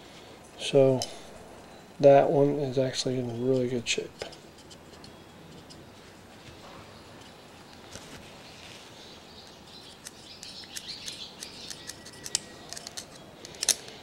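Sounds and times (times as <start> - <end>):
small metal clicks and scraping: 3.6 - 5.9, 9.8 - 14.0.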